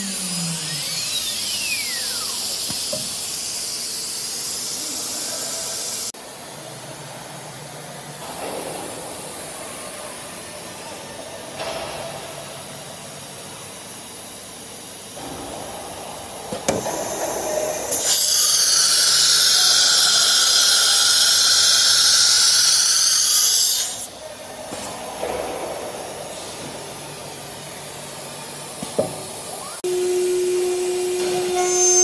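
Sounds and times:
sharp pneumatic clicks: 0.7s - 4.8s
compressed air hissing: 16.7s - 24.1s.

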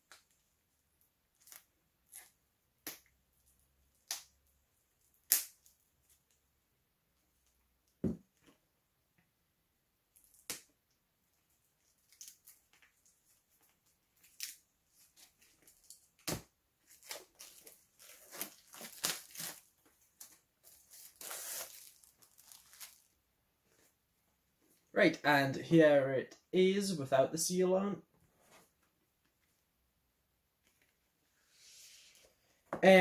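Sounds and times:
plastic wrap crinkling and tearing: 14.2s - 23.1s.

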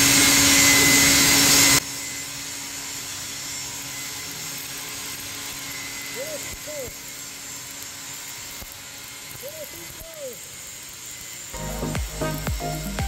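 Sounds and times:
welding arc hissing: 0.0s - 13.0s
loud hiss with faint hum: 11.4s - 13.0s.

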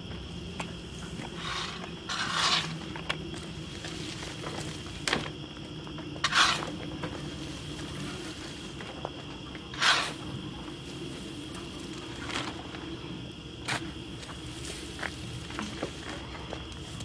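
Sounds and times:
shovel scraping wood chips: 1.3s - 5.0s, 6.2s - 8.8s, 9.7s - 10.3s.

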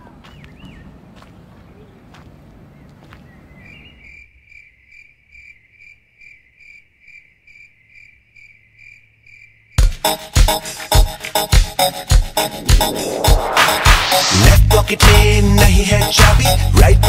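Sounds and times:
outdoor background noise: 0.0s - 9.8s
cricket chirping: 3.7s - 9.8s
loud electronic music: 9.8s - 17.0s.

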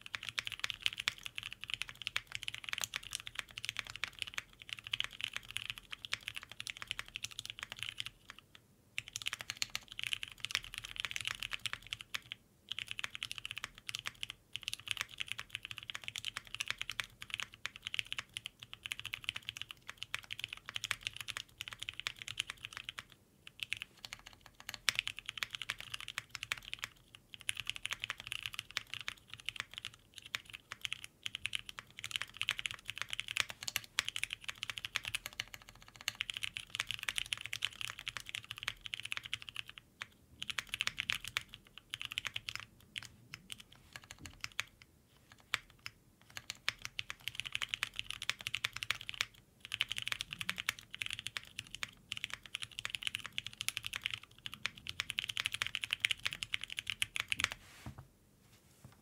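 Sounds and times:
mechanical keyboard typing: 0.0s - 57.6s.

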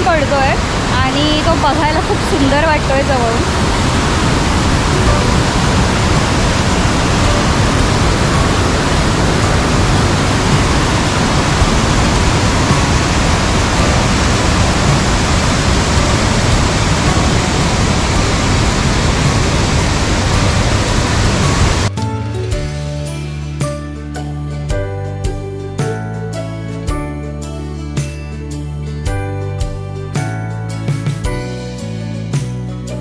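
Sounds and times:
waterfall roaring: 0.0s - 21.9s.

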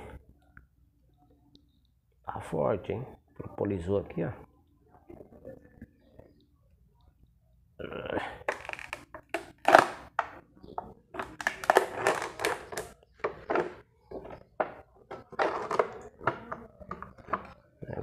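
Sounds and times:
plastic sheet peeling and crackling: 8.5s - 10.4s, 11.2s - 13.8s, 15.0s - 17.6s.

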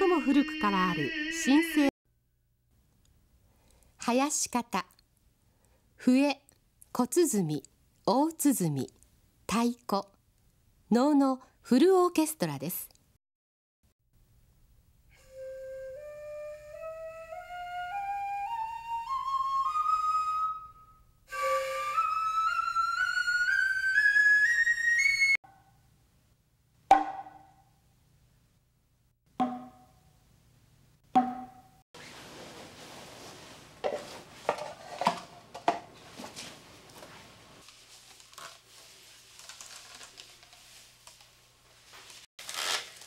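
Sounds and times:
flute notes climbing: 0.0s - 1.9s, 15.1s - 25.4s.

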